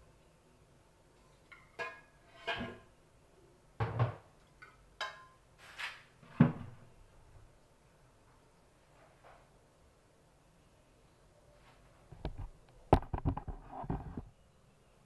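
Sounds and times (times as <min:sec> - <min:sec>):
kitchenware clattering: 0:01.4 - 0:02.9, 0:03.8 - 0:05.4.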